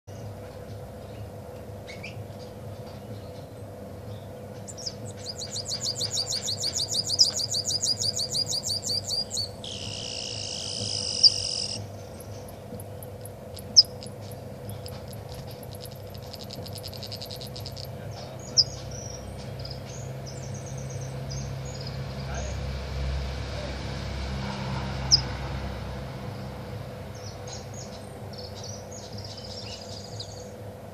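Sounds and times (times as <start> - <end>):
songbird rapid trill: 3.1 - 22.6, 24.9 - 25.5, 26.2 - 30.6
bird chirps: 4.1 - 22.5, 25.0 - 25.3, 27.2 - 30.6.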